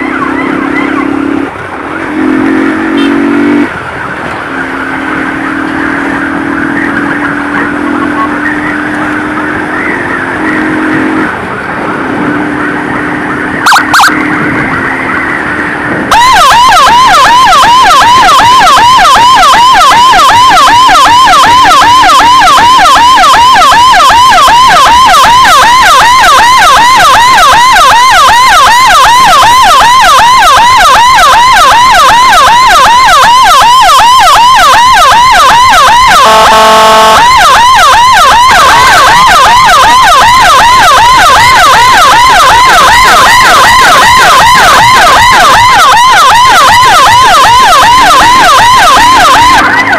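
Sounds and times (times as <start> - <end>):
faint wavering siren: 0.0 - 49.9
siren yelping: 0.0 - 49.9
short loud siren blasts: 2.2 - 49.9.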